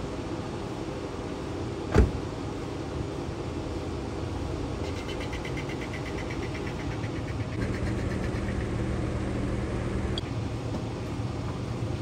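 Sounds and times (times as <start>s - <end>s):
low background rumble: 0.0s - 12.0s
car door shutting: 1.9s - 2.2s.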